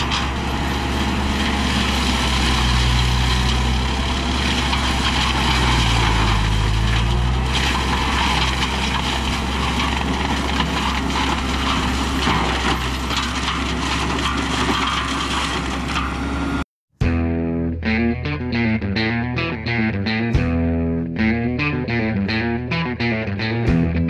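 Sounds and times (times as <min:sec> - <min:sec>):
mulcher shredding branches: 0:00.0 - 0:16.6
tractor diesel engine running: 0:00.0 - 0:16.6.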